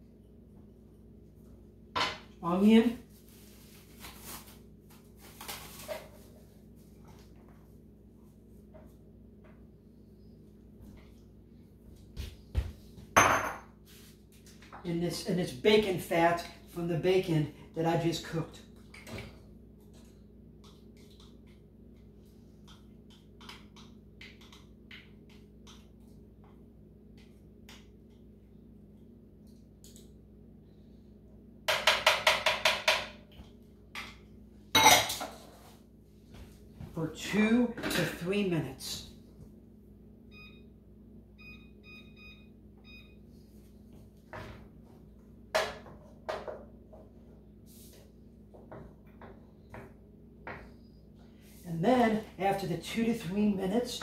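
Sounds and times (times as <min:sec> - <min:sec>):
low steady hum: 0:00.0 - 0:54.0
microwave keypad beeps: 0:40.3 - 0:40.7, 0:41.4 - 0:43.2.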